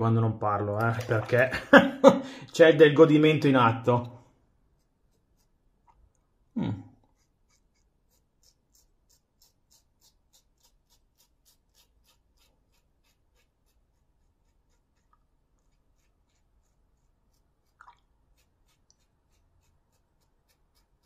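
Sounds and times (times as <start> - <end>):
razor scraping stubble: 3.4 - 6.0, 7.1 - 21.0.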